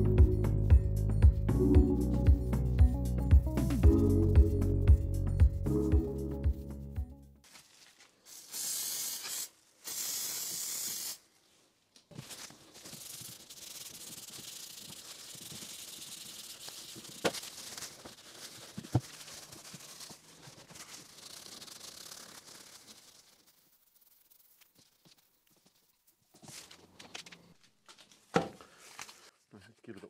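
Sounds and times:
short hissing bursts: 0:08.2 - 0:11.3, 0:12.8 - 0:17.2
scrubbing metal with scouring pad: 0:12.8 - 0:25.0.

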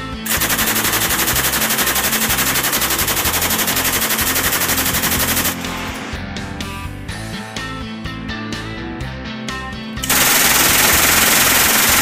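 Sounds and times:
machine gun full-auto burst: 0:00.3 - 0:05.9, 0:10.0 - 0:12.0.

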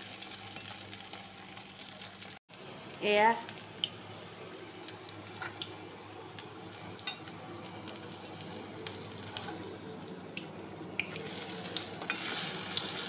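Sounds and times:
food sizzling in hot oil: 0:00.0 - 0:13.0
oil popping and crackling: 0:04.8 - 0:13.0.

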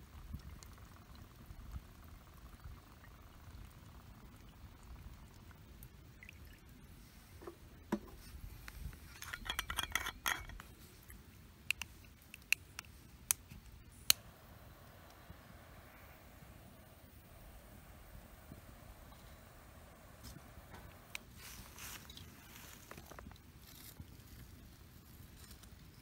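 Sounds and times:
metal cups clinking and rattling: 0:09.0 - 0:10.7.

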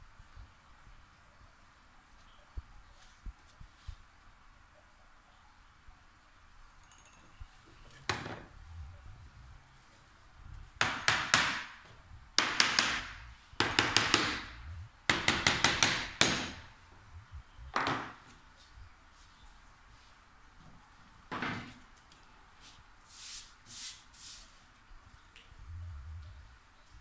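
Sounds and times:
hammer tapping wooden frame: 0:10.8 - 0:11.8, 0:12.4 - 0:14.5, 0:15.1 - 0:16.7.

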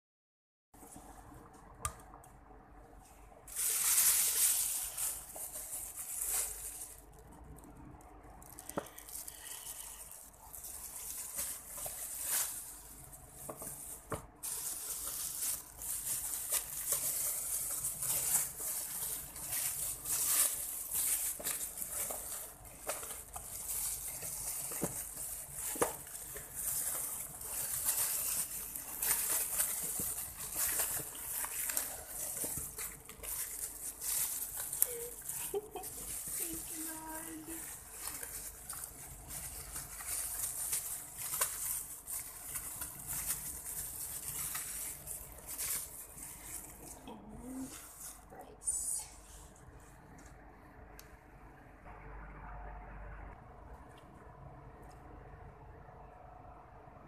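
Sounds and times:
plastic bag crinkling: 0:03.4 - 0:48.6.

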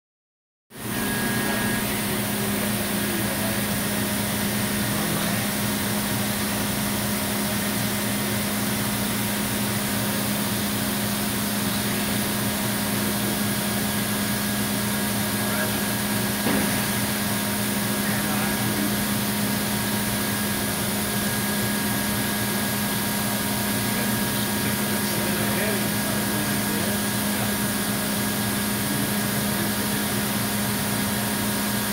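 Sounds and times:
cnc router running: 0:00.7 - 0:31.9
brief knock: 0:16.4 - 0:16.9.

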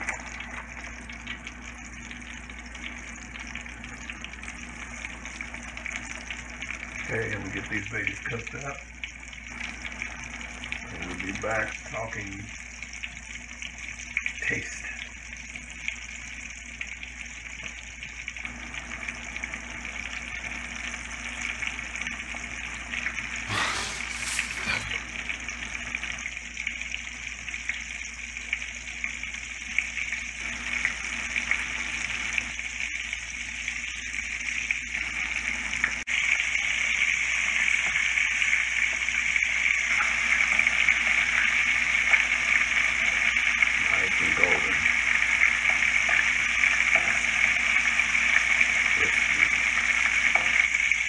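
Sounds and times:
oil sizzling and bubbling: 0:00.0 - 0:51.0
brief louder noise: 0:23.5 - 0:25.1.

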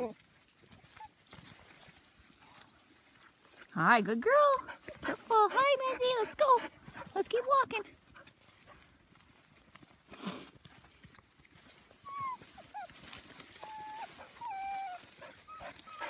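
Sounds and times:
puppies whining: 0:00.6 - 0:01.3, 0:11.9 - 0:16.0.

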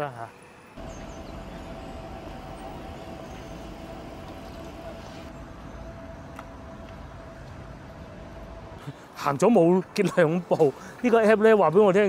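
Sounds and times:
thin steady whine: 0:00.1 - 0:07.3
passing vehicles rumble: 0:00.8 - 0:08.8.

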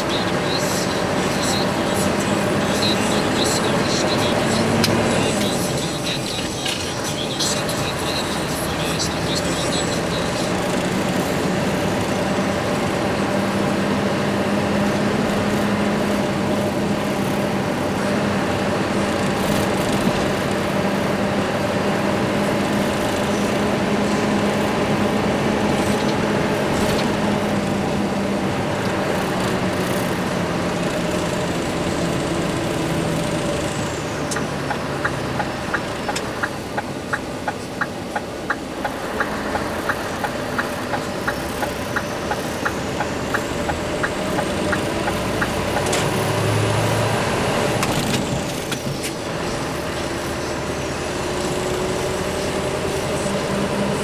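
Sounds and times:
diesel truck engine running: 0:00.0 - 0:54.0
road noise: 0:00.0 - 0:54.0
turn-signal indicator ticking: 0:34.3 - 0:46.0.

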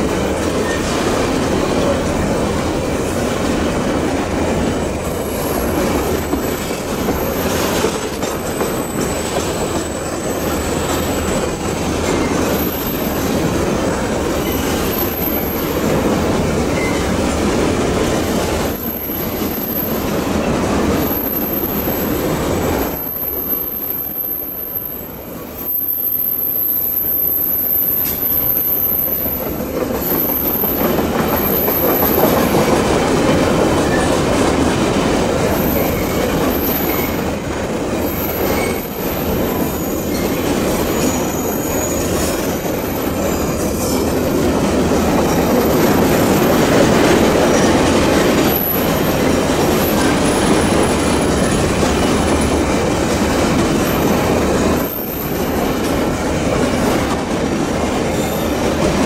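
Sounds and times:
train wheels rumbling on rails: 0:00.0 - 0:59.0
high wheel squeal: 0:14.3 - 0:16.0, 0:16.6 - 0:17.2, 0:35.5 - 0:37.4, 0:38.0 - 0:44.4, 0:53.7 - 0:55.9.

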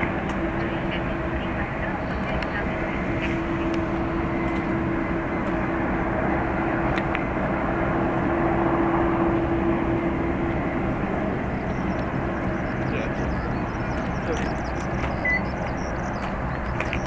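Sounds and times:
jet engines rumbling: 0:00.0 - 0:17.0.

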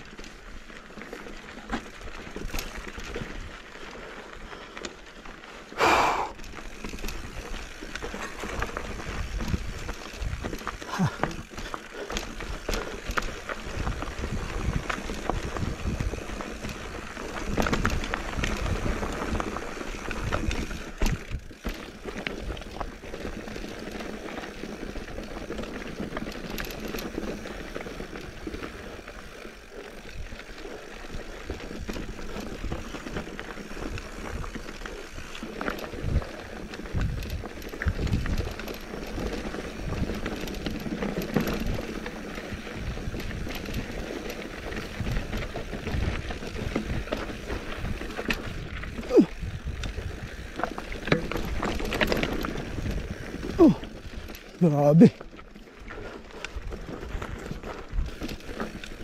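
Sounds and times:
bike tyres rolling over stones: 0:00.0 - 0:59.0
wheels thumping on rocks: 0:30.5 - 0:54.5.

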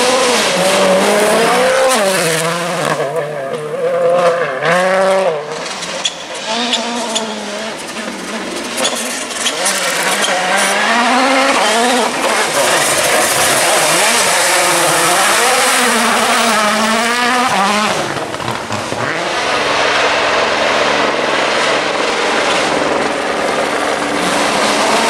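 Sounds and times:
rally car engine revving: 0:00.0 - 0:25.0.

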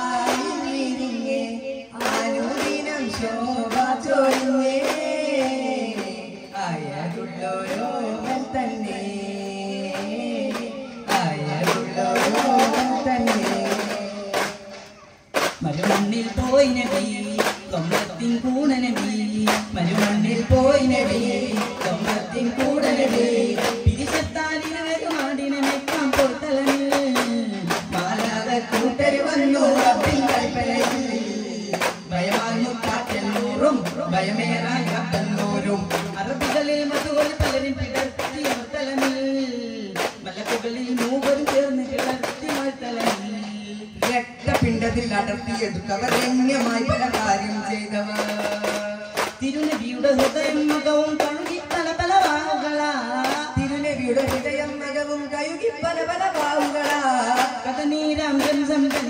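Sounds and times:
person singing devotional song: 0:00.0 - 0:59.0
frame drum strikes: 0:07.1 - 0:39.3.

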